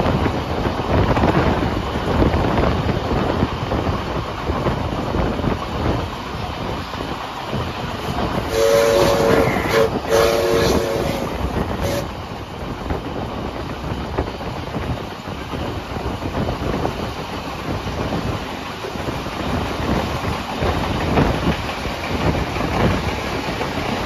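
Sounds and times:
train wheels clickety-clack on track: 0.0s - 24.0s
steam locomotive whistle: 8.0s - 12.2s.

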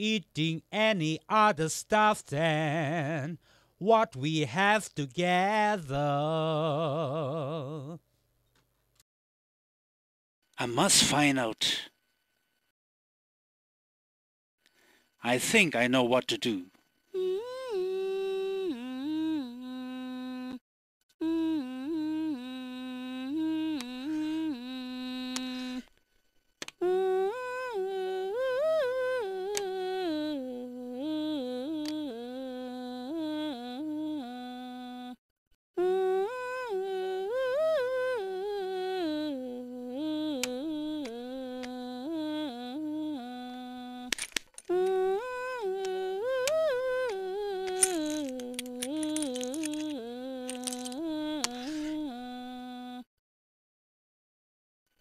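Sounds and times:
person humming a folk tune: 0.0s - 8.0s, 17.2s - 20.6s, 21.2s - 25.9s, 26.8s - 35.2s, 35.8s - 53.1s.

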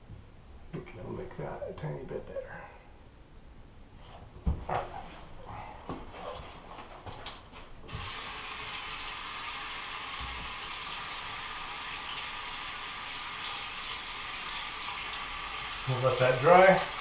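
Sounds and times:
steady rushing hiss: 7.9s - 17.0s.

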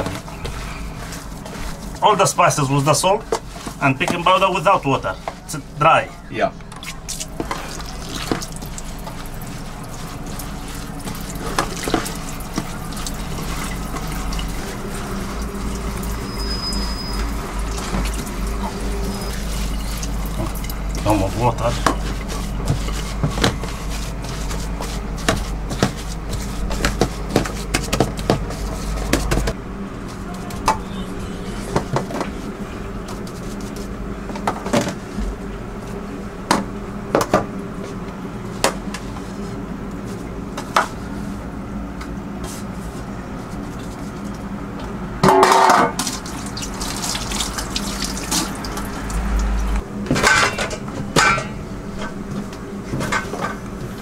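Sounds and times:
hands working mix in steel tray: 0.0s - 5.8s, 7.1s - 29.4s, 45.6s - 49.3s.

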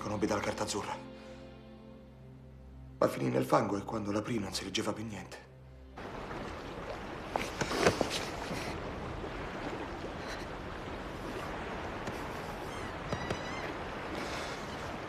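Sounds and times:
lapping water: 6.0s - 15.0s.

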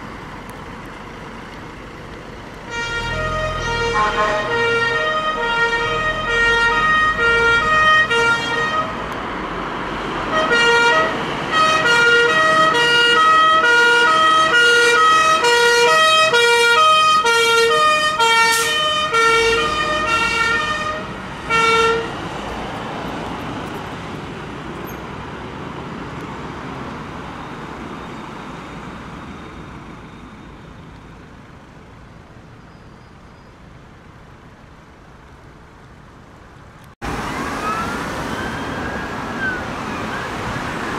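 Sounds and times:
engine and road noise: 0.0s - 40.9s
fire engine siren two-tone: 2.7s - 9.0s, 10.3s - 22.1s, 37.2s - 40.6s.

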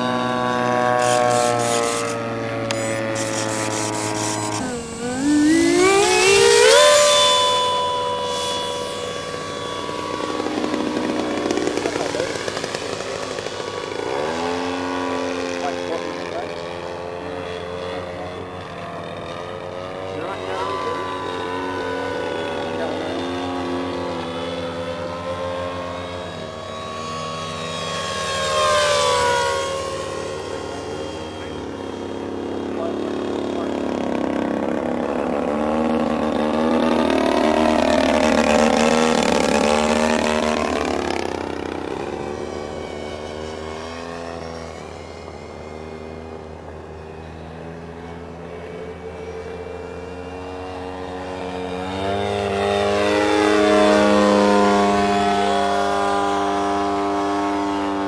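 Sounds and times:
model jet electric fans whining: 0.0s - 58.0s.

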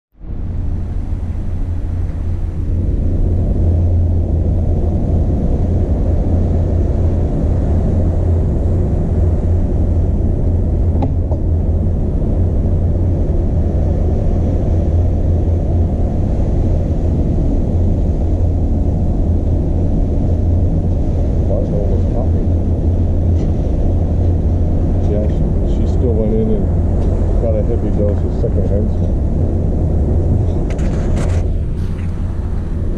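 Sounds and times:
ship machinery rumble: 0.1s - 32.9s
wind over deck: 0.1s - 32.9s.

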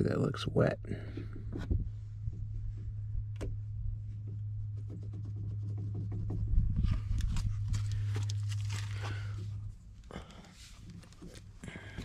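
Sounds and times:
steady low hum: 0.0s - 12.0s
scrapes and rustles: 4.0s - 12.0s
hands rubbing hoses: 10.4s - 12.0s.

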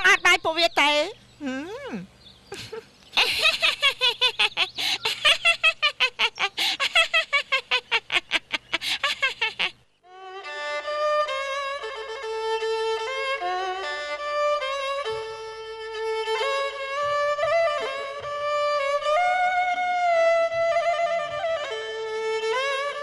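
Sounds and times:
woman laughing loudly: 2.5s - 9.8s.

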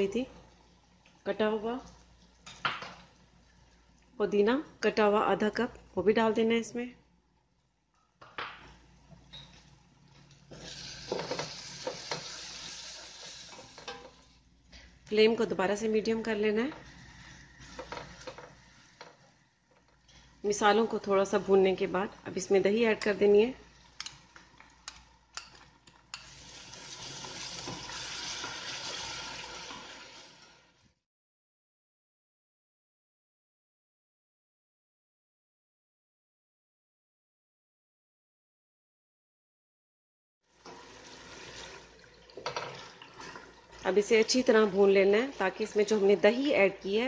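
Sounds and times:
food sizzling in oil: 10.5s - 14.4s, 26.1s - 30.7s
yoghurt sizzling in hot oil: 10.5s - 14.4s, 23.5s - 30.9s, 40.5s - 46.2s.

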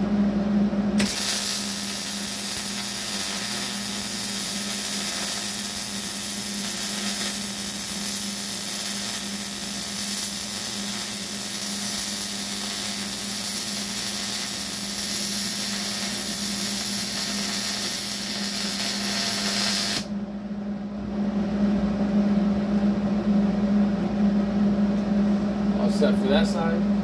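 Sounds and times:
machine hum: 0.0s - 27.0s
welding arc sizzling and crackling: 1.0s - 20.1s.

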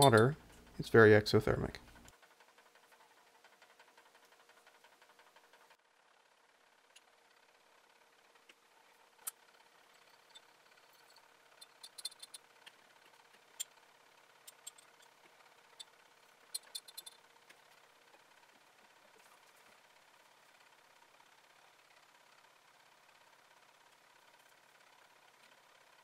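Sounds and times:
low steady hum: 0.0s - 5.0s.

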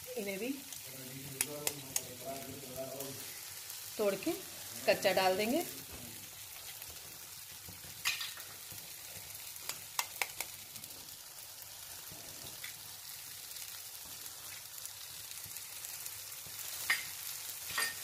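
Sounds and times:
food sizzling in a frying pan: 0.0s - 18.0s
egg cracking clicks: 9.5s - 10.8s.

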